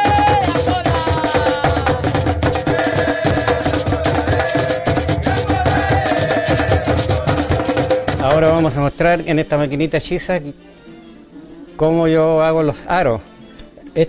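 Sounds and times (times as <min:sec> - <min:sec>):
conga drums: 0:00.0 - 0:08.9.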